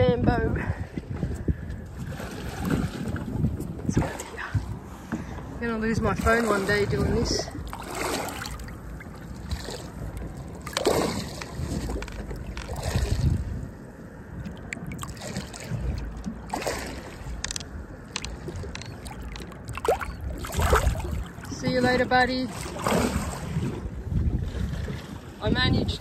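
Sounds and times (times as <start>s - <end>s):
low rumble: 6.8s - 24.6s
fish splashing in water: 7.5s - 13.5s, 14.4s - 21.6s.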